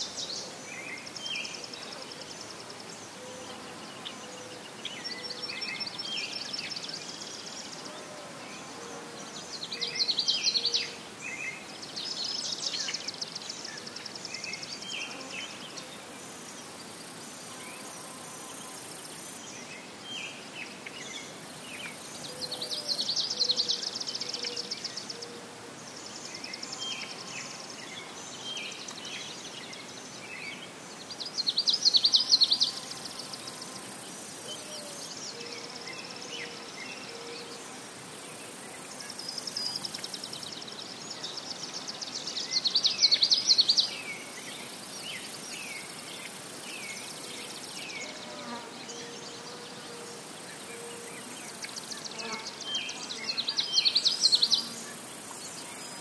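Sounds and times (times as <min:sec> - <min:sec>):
high insect drone: 0:14.3 - 0:19.5, 0:31.4 - 0:40.5, 0:43.1 - 0:56.0.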